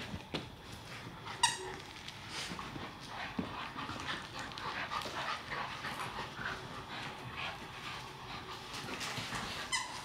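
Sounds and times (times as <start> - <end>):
dogs making high play noises: 2.6 - 10.0.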